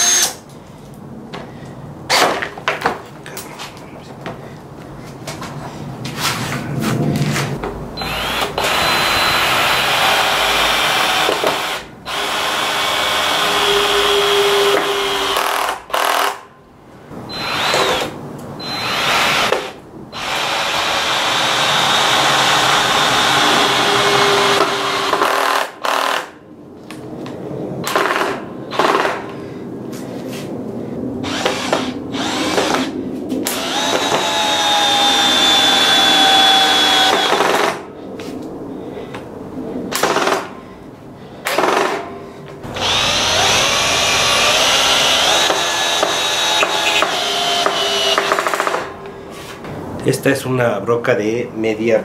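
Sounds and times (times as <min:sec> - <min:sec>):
cordless drill whining into wood: 0:00.0 - 0:00.4, 0:08.0 - 0:16.4, 0:17.3 - 0:26.3, 0:31.2 - 0:32.9, 0:33.5 - 0:37.8, 0:42.7 - 0:48.9.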